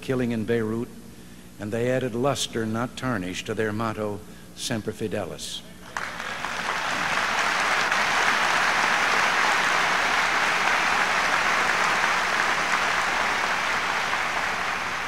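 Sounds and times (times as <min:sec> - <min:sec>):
large crowd applauding: 0:05.9 - 0:15.0.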